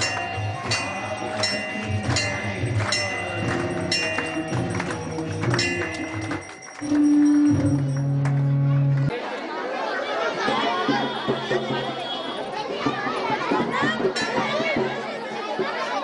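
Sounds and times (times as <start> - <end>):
metal percussion beat: 0.0 - 8.6, 10.5 - 16.0
drum: 10.5 - 16.0.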